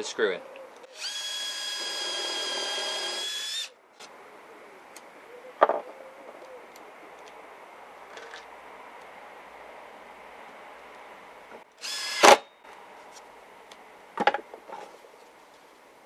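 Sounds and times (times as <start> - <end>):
cordless drill driving screw: 0.9 - 3.7, 11.8 - 12.4.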